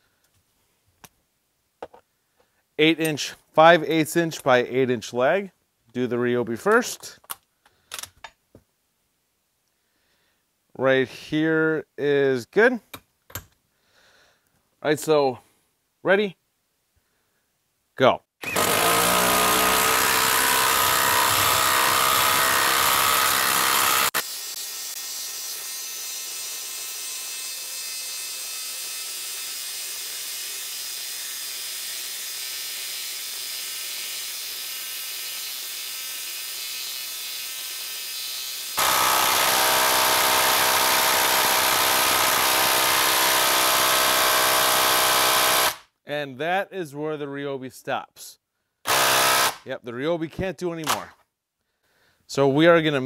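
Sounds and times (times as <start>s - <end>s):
impact driver hammering: 18.4s - 24.3s, 38.8s - 45.8s, 48.9s - 49.6s.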